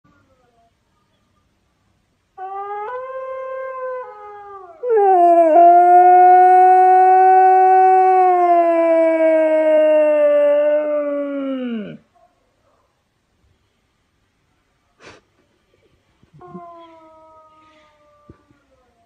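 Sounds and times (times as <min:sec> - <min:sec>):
dog howling: 0:02.4 - 0:12.0.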